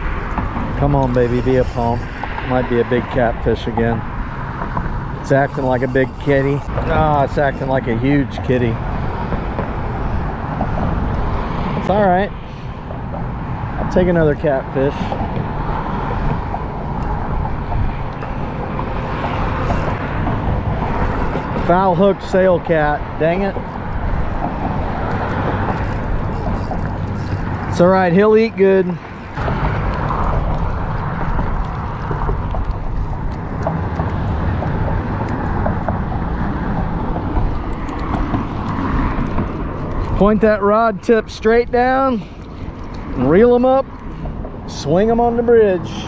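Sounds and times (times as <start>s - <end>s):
road traffic rumble: 0.0s - 46.0s
wind: 0.0s - 46.0s
fishing reel ticking: 0.8s - 3.1s, 5.2s - 8.8s, 18.1s - 29.4s.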